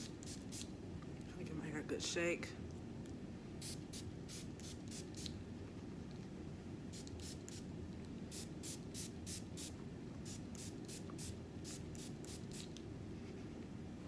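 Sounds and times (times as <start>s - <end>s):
steady low hum: 0.0s - 14.0s
spray bottle misting: 7.0s - 7.6s, 8.3s - 12.7s.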